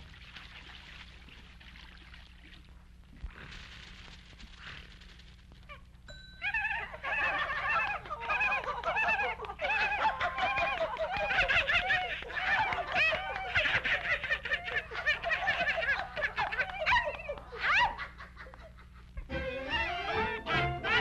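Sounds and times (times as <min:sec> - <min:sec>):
cartoon animal voices laughing: 0:06.4 - 0:21.0.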